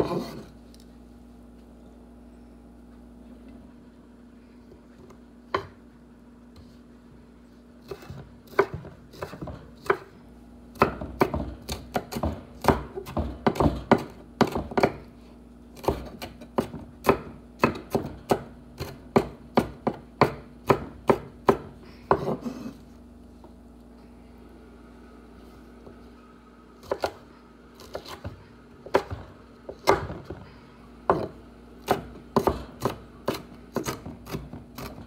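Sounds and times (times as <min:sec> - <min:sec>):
knife chopping on wooden board: 0:00.0 - 0:00.5, 0:05.5 - 0:05.8, 0:07.8 - 0:10.1, 0:10.8 - 0:15.1, 0:15.8 - 0:22.7, 0:26.8 - 0:27.2, 0:27.8 - 0:35.0.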